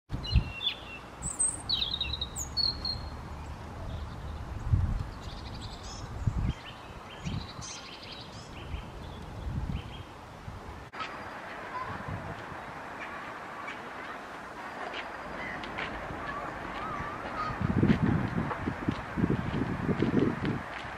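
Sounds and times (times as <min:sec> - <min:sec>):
robin singing: 0:00.2 - 0:10.2.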